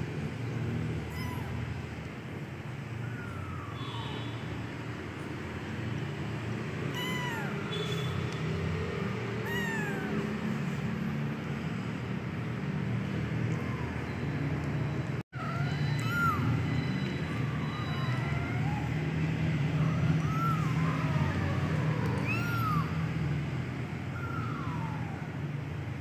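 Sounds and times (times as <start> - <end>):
kitten mewing: 1.0 - 1.8, 3.0 - 4.2, 6.9 - 8.2, 9.3 - 10.6, 15.4 - 23.2, 24.1 - 25.3.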